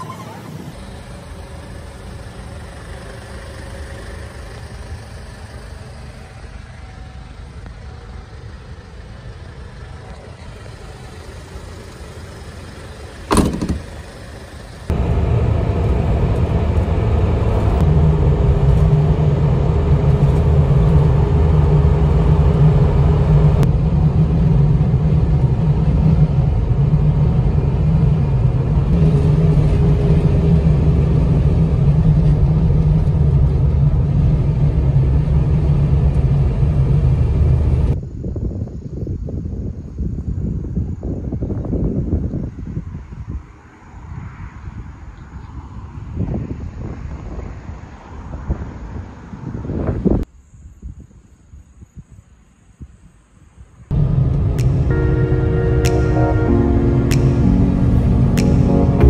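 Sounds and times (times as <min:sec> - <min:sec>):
vehicle engine running: 0:00.6 - 0:38.0, 0:53.9 - 0:59.0.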